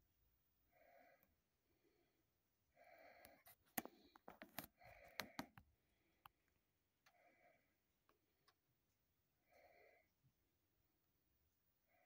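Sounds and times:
soft breaths: 0.6 - 6.4, 7.0 - 8.2, 9.4 - 10.4.

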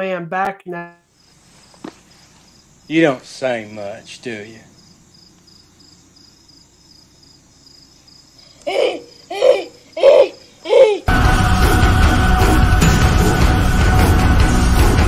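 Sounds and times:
crickets chirping: 0.7 - 15.0
hooting calls: 8.4 - 14.9
loud music: 11.1 - 15.0.

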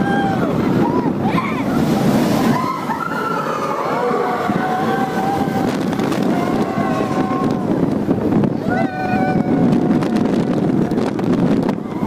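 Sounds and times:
roller coaster rumbling on track: 0.0 - 12.0
riders screaming: 2.4 - 7.7.

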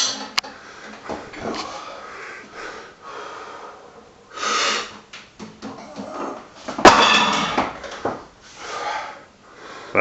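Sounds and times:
man breathing hard: 0.6 - 5.0, 8.5 - 10.0.

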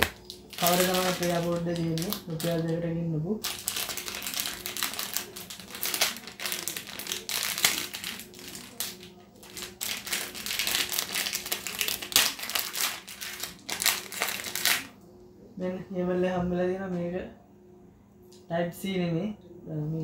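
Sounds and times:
plastic pouch crinkling: 0.0 - 2.8, 3.4 - 14.9.

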